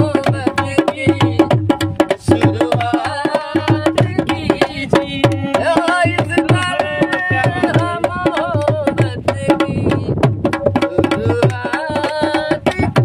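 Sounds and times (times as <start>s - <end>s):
hand drum beat: 0.0s - 13.0s
person singing: 10.8s - 13.0s.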